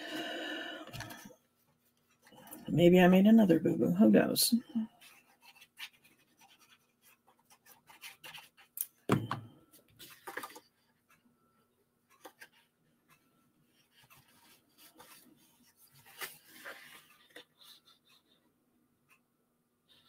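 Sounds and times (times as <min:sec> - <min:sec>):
thump: 0:09.1 - 0:09.4
paper rustling and sliding: 0:13.9 - 0:18.3.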